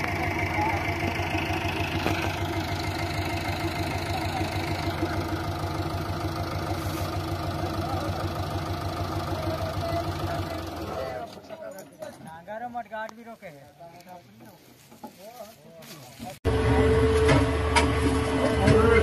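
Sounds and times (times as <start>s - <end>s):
diesel engine running: 0.0s - 11.5s, 16.4s - 19.0s.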